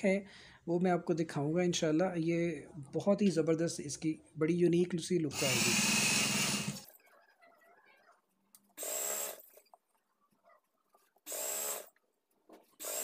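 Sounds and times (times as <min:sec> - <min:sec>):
industrial sewing machine stitching: 0:05.4 - 0:06.8, 0:12.8 - 0:13.0.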